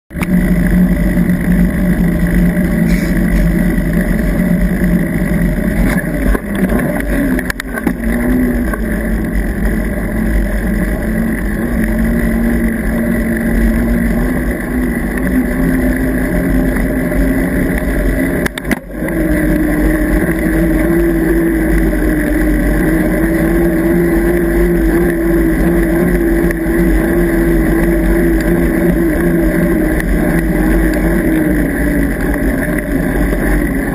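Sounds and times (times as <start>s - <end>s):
bike tyres humming on asphalt: 0.1s - 33.9s.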